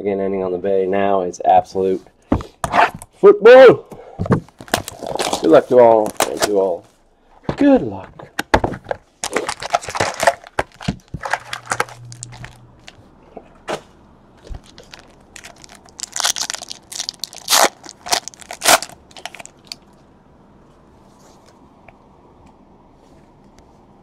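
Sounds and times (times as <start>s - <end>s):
foil pack tearing open: 4.6s - 6.6s, 9.2s - 13.0s, 14.4s - 19.8s
foil wrappers crinkling: 4.6s - 6.8s, 9.2s - 13.0s, 14.4s - 19.8s.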